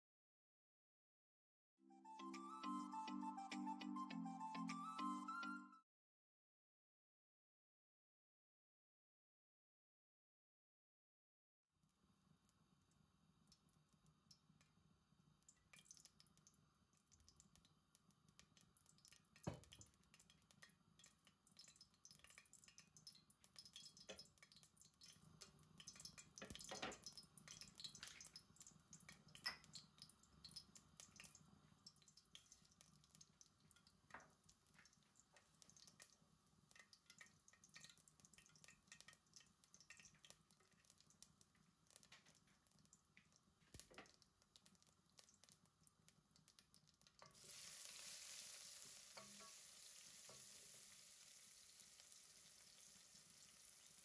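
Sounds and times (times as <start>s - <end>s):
small wet clicks: 11.8s - 14.8s, 15.4s - 47.4s
faint dripping: 11.8s - 48.0s.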